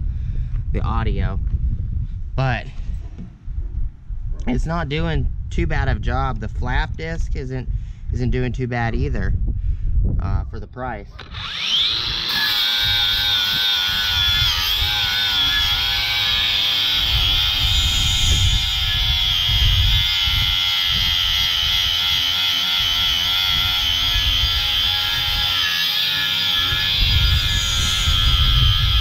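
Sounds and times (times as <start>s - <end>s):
wind on microphone: 0.0s - 29.0s
angle grinder whining: 11.2s - 29.0s.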